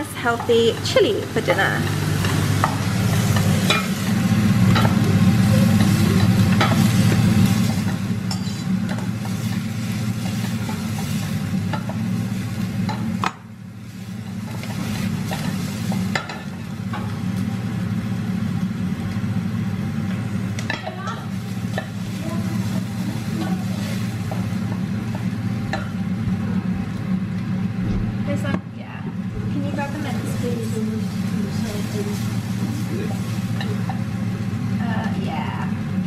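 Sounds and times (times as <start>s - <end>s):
onion sizzling in a saucepan: 0.0s - 36.0s
steady low hum: 0.0s - 36.0s.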